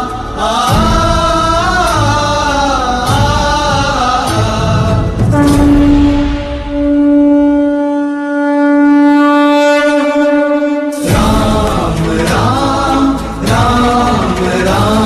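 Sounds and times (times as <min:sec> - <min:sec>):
devotional singing with music: 0:00.0 - 0:15.0
conch shell blown: 0:05.3 - 0:12.0.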